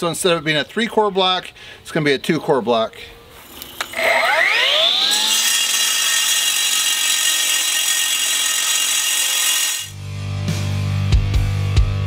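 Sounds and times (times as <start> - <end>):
cutoff saw cutting concrete: 3.4 - 10.0.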